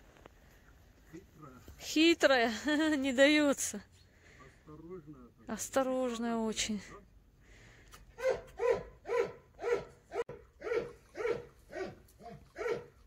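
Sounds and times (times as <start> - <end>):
dog barking: 8.2 - 13.0.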